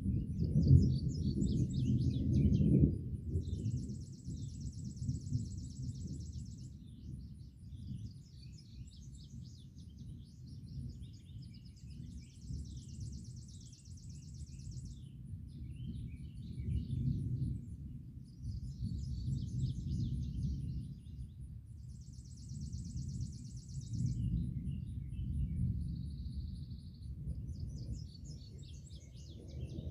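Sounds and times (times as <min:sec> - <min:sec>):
distant thunder rumbling: 0:00.0 - 0:08.3, 0:14.6 - 0:21.3, 0:22.4 - 0:29.9
songbirds chirping: 0:00.1 - 0:29.9.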